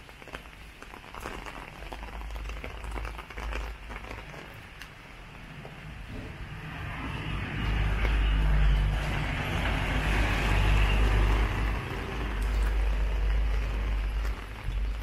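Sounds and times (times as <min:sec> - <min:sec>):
tyre hiss on wet street: 0:00.0 - 0:15.0
vehicle engine rumbling: 0:05.0 - 0:15.0.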